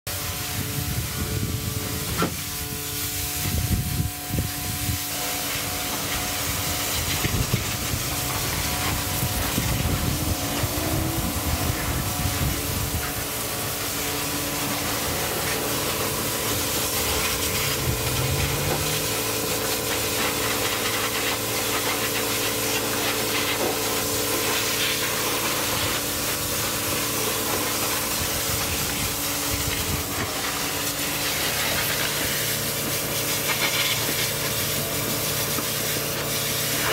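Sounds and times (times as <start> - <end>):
machine humming: 0.1 - 31.6
pressure washer spraying water: 0.1 - 36.9
low rumbling: 0.3 - 21.0.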